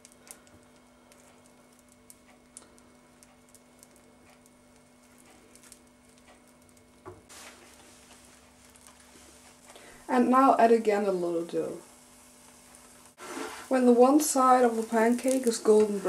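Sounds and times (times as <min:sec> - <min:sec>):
batter crackling in frying pan: 0:00.0 - 0:16.0
low steady hum: 0:00.0 - 0:16.0.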